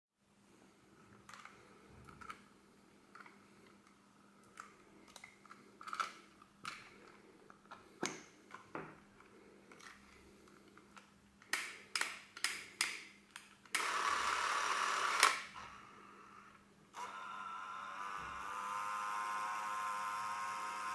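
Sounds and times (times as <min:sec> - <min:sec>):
sharp camera clicks: 0:13.7 - 0:15.5
camera motor whirring: 0:13.8 - 0:20.9.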